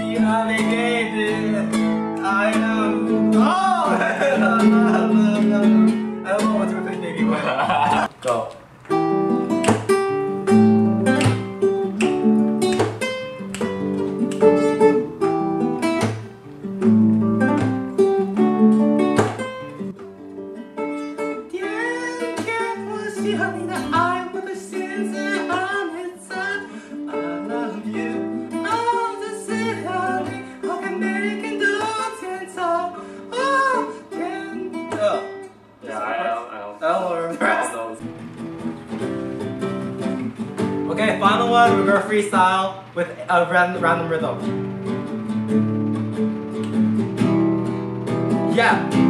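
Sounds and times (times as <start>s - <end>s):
man singing: 0.0s - 8.1s, 21.4s - 38.0s, 40.9s - 44.4s
classical guitar strumming: 0.0s - 49.0s.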